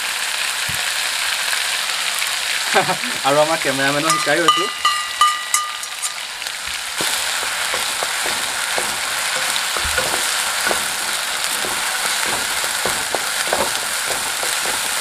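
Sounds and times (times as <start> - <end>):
paste sizzling in hot oil: 5.8 - 15.0
spatula scraping and tapping: 7.0 - 15.0.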